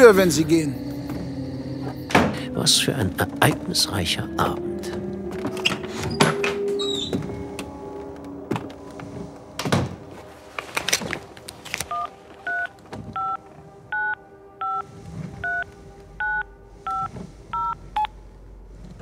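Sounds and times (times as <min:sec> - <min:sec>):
touch-tone keypad beeps: 0:11.9 - 0:14.8, 0:16.2 - 0:18.1.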